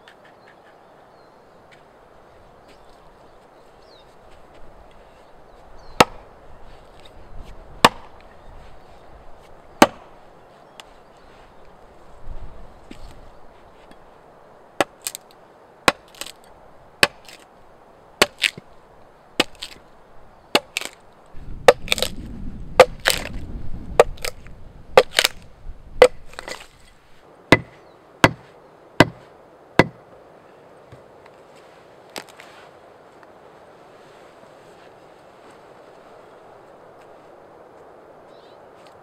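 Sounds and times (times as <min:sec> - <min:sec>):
axe chopping log: 0:06.0 - 0:06.3, 0:07.8 - 0:08.2, 0:09.8 - 0:10.2, 0:14.8 - 0:15.2, 0:15.8 - 0:16.4, 0:17.0 - 0:17.4, 0:18.2 - 0:18.7, 0:19.4 - 0:19.8, 0:20.5 - 0:21.0, 0:21.7 - 0:22.2, 0:22.8 - 0:23.4, 0:24.0 - 0:24.4, 0:25.0 - 0:25.4, 0:26.0 - 0:26.7, 0:27.5 - 0:29.2, 0:29.8 - 0:30.0
wood chips splitting off: 0:15.9 - 0:16.4, 0:21.7 - 0:22.2, 0:22.8 - 0:23.4, 0:24.0 - 0:25.4.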